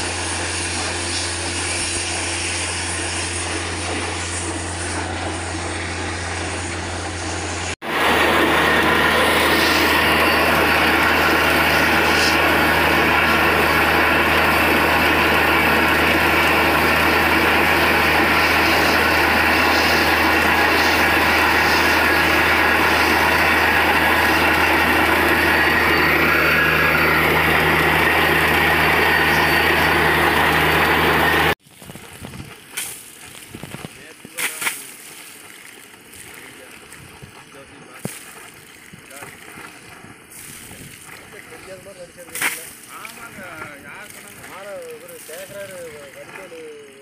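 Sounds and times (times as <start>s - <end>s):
drilling rig engine drone: 0.0s - 31.6s.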